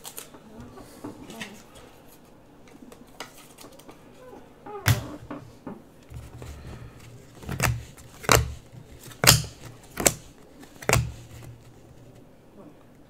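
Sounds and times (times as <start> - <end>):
trading cards snapping: 7.2 - 11.8.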